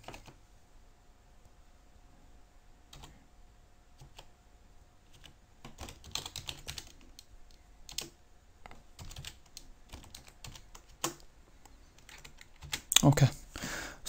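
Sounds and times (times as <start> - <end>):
keyboard typing: 0.0 - 0.4, 2.9 - 3.2, 4.0 - 4.3, 5.1 - 13.0.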